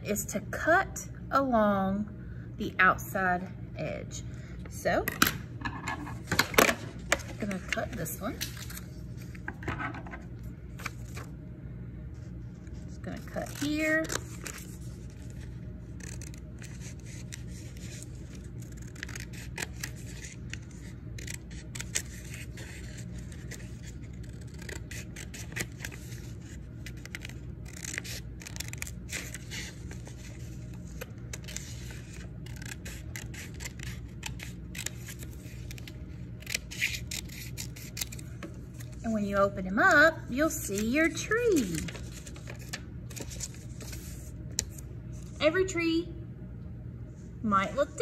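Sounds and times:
scissors snipping paper: 16.0 - 26.2, 26.8 - 30.4, 31.0 - 38.2
paper rustling: 41.5 - 44.8.

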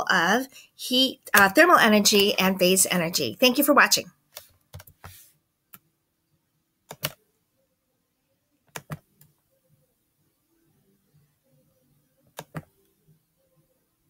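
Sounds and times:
computer clicks: 6.9 - 7.2, 8.7 - 9.3, 12.3 - 12.7.

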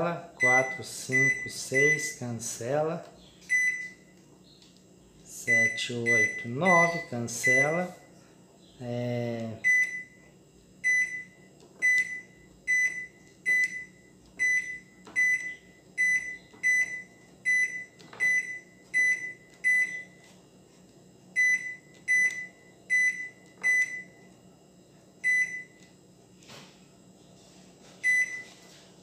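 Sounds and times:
microwave keypad beeps: 0.4 - 2.2, 3.5 - 4.2, 5.4 - 8.0, 9.6 - 20.2, 21.4 - 24.2, 25.2 - 25.8, 28.0 - 28.5.

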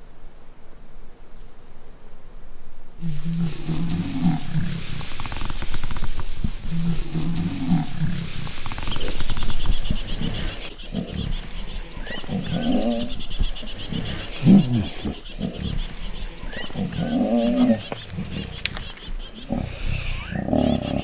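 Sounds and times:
buffalo bellowing in distress: 3.0 - 5.4, 6.4 - 19.8
lions growling: 3.0 - 21.0.

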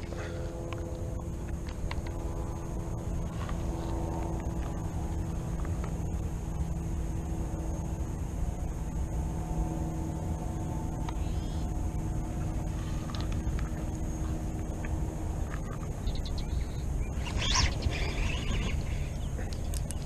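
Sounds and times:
low hum: 0.0 - 20.0
wind rumbling on microphone: 0.0 - 20.0.

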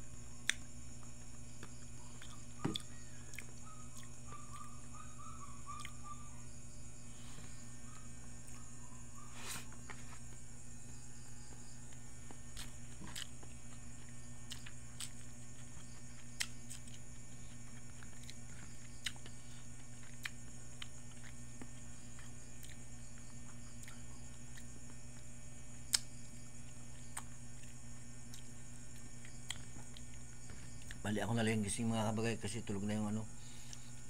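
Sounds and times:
steady low hum: 0.0 - 34.0
person chewing food: 0.4 - 4.7, 5.8 - 6.1, 11.5 - 31.0.

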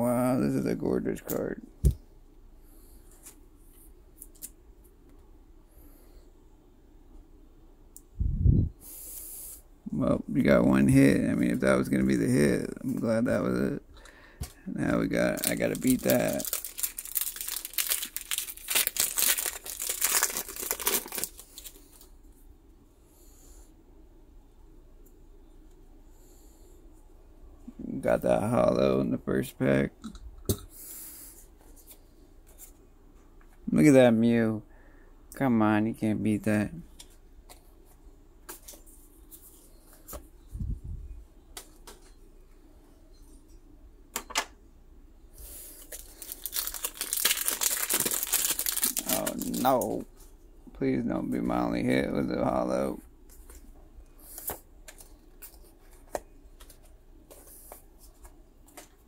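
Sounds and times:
cards rustling: 14.9 - 22.1, 45.6 - 50.0, 53.3 - 59.0
wrapper crinkling and tearing: 15.0 - 22.0, 45.7 - 50.0.

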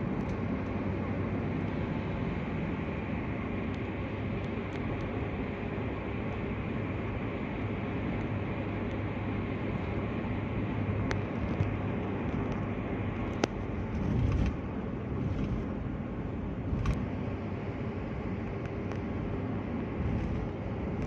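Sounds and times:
car engine hum: 0.0 - 21.0
tyre and road noise: 0.0 - 21.0
low rumble: 13.6 - 17.6, 19.2 - 21.0.

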